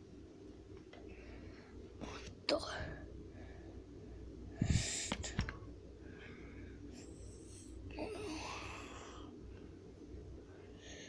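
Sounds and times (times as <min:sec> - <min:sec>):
child making hissing mouth sounds: 0:04.6 - 0:05.4.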